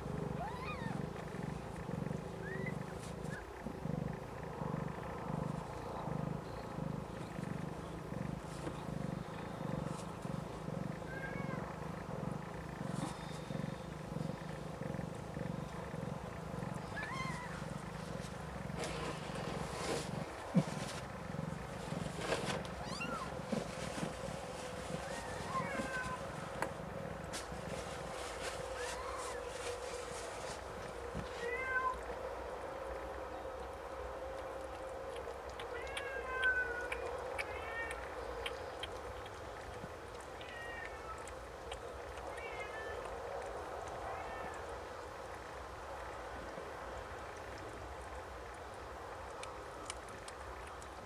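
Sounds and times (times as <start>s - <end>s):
cat purring: 0.0s - 31.4s
rustling: 0.0s - 31.6s.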